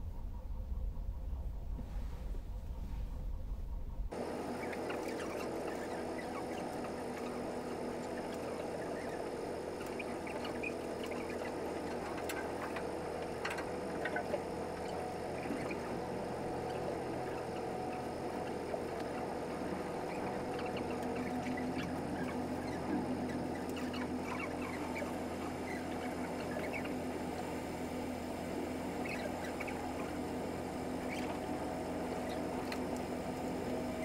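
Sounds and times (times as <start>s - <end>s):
ferry engine and ventilation drone: 0.0s - 34.0s
faint clicks: 32.3s - 33.1s.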